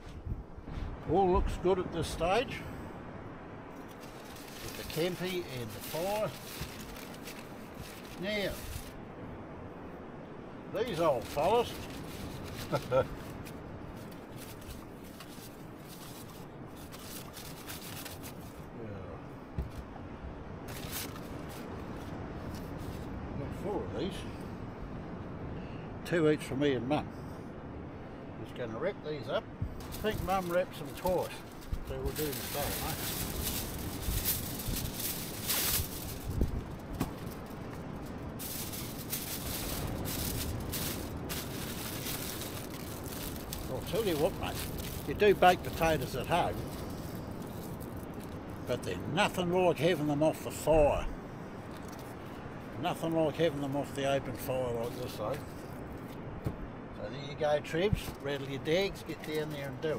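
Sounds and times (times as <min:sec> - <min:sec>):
low background noise: 0:00.0 - 0:59.9
aluminium foil crinkling: 0:03.8 - 0:09.0, 0:10.8 - 0:18.6, 0:29.8 - 0:48.4
paper bag rustling: 0:03.8 - 0:09.0, 0:10.8 - 0:18.6, 0:20.7 - 0:23.1, 0:29.8 - 0:48.4.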